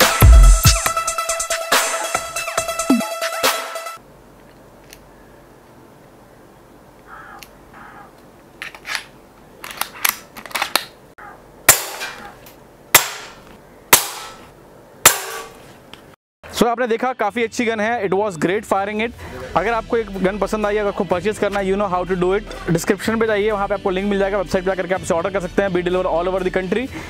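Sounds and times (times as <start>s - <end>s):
air rifle action clicks: 8.2s - 11.0s.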